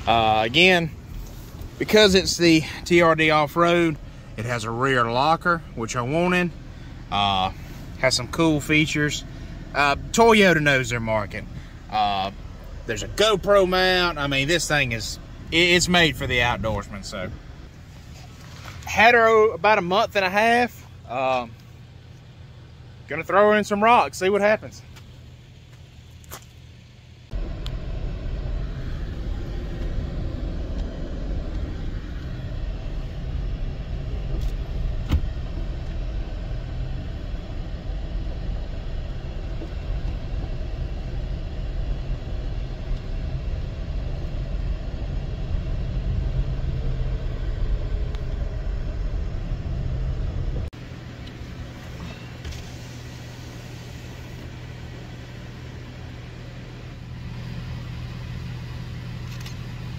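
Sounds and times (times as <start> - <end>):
pickup engine rumble: 0.0 - 59.9
steady low hum: 0.0 - 59.9
tyres on gravel: 12.7 - 19.3, 24.8 - 26.7.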